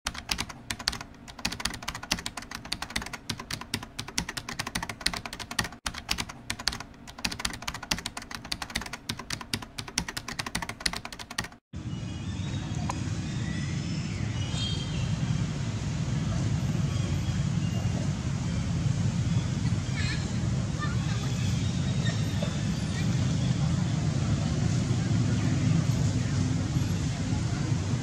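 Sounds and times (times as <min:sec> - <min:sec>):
keyboard typing clicks: 0:00.1 - 0:11.6.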